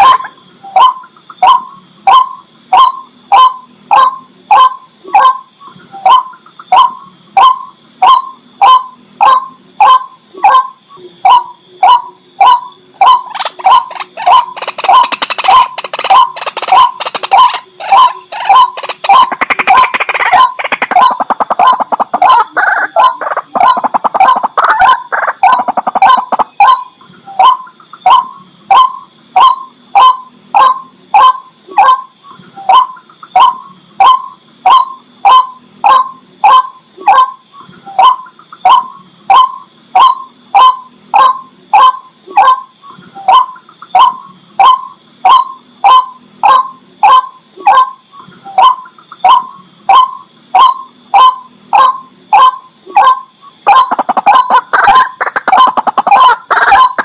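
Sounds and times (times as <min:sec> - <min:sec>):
bird calling: 0:00.0 - 0:57.0
steady high hiss: 0:00.0 - 0:57.0.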